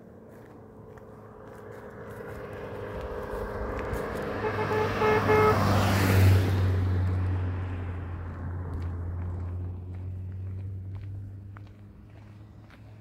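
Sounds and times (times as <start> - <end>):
vehicle engine hum passing: 0.0 - 13.0
vehicle horn short toots: 4.3 - 5.8.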